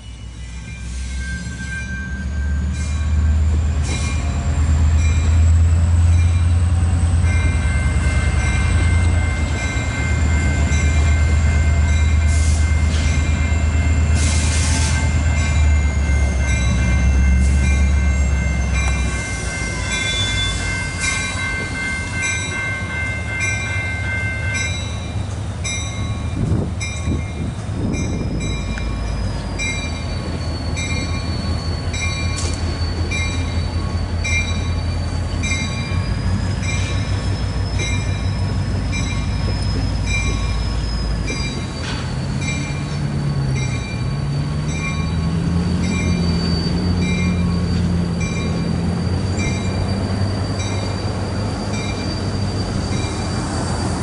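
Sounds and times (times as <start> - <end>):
locomotive engine droning: 0.0 - 54.0
wheels squealing: 27.4 - 54.0.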